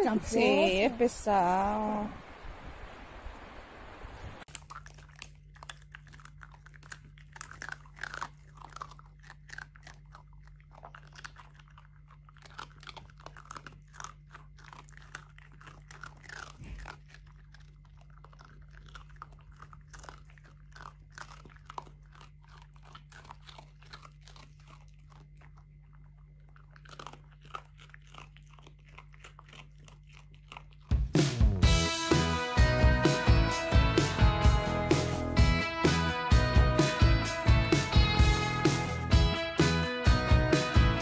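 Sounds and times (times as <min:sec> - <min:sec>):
faint low hum: 0:00.0 - 0:31.7
dogs crunching treats: 0:04.5 - 0:41.0.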